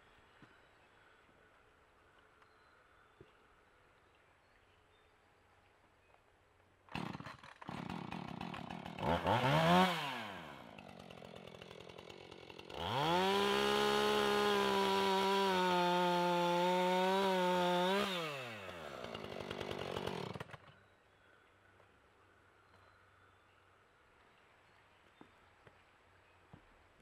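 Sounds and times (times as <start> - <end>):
chainsaw idling and revving: 6.9 - 20.8.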